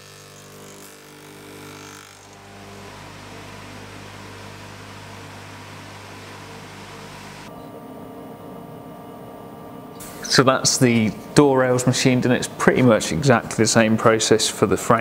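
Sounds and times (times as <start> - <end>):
motors humming with hiss: 0.0 - 7.6, 10.0 - 10.5.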